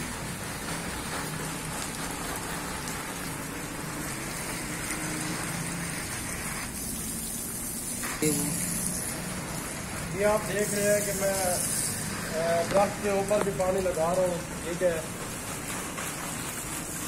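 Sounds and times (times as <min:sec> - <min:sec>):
hose water spraying on leaves: 0:00.0 - 0:17.0.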